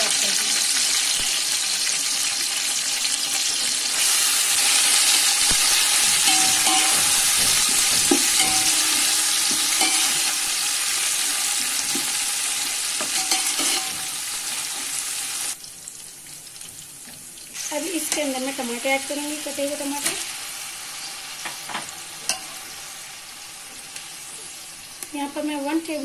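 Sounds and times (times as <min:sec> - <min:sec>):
oil sizzling in a pot: 0:00.0 - 0:26.0
metal spatula scraping a pot: 0:05.7 - 0:12.1, 0:12.8 - 0:14.1.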